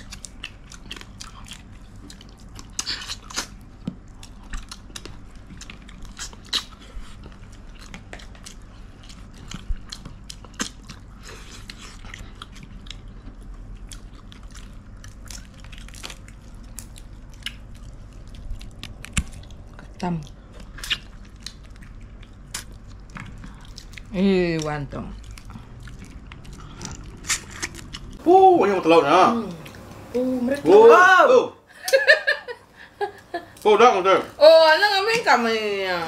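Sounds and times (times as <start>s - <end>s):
chewing with crunches: 0.0s - 28.2s
steady low hum: 0.0s - 36.0s.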